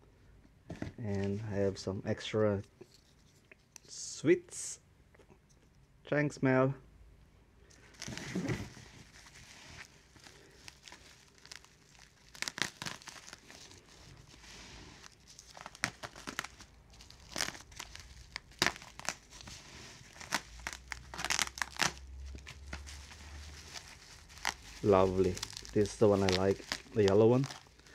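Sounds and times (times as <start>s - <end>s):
bubble wrap crackling: 7.8s - 27.9s.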